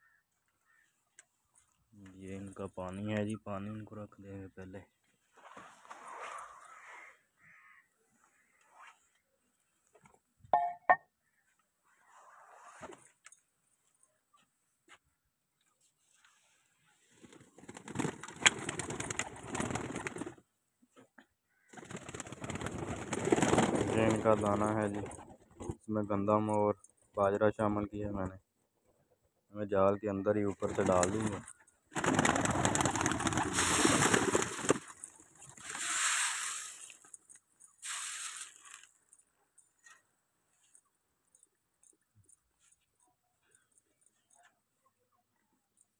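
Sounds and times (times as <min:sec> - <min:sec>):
grain pouring with rattling: 0:33.0 - 0:37.2, 0:37.8 - 0:39.0.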